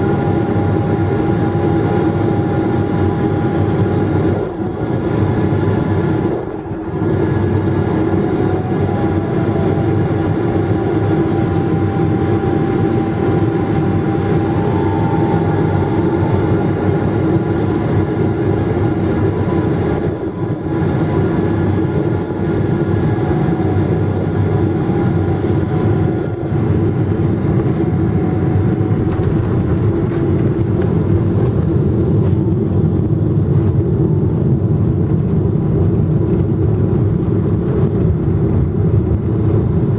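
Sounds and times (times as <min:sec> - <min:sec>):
aircraft cabin roar: 0:00.0 - 0:39.9
faint engine whine: 0:00.0 - 0:39.9.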